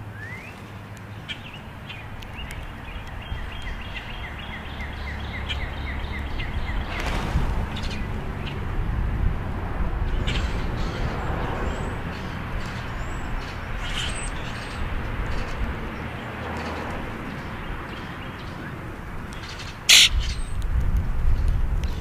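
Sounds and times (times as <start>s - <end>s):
grackles chirping: 19.4s - 20.6s
harsh bird rasp: 19.9s - 20.5s.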